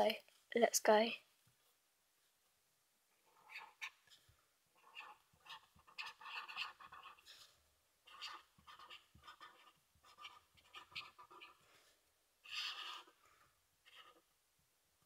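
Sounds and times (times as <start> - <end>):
marker pen scratching on paper: 3.2 - 13.2.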